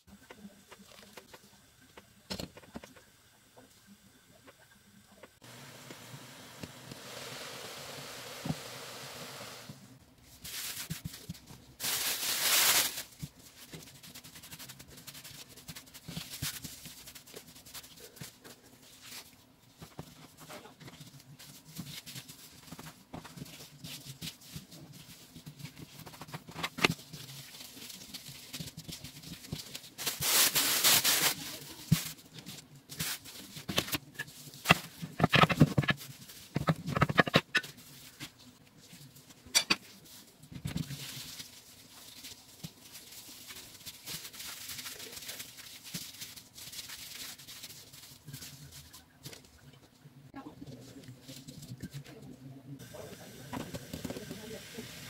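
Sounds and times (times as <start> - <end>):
glove rustles: 10.3 - 35.0.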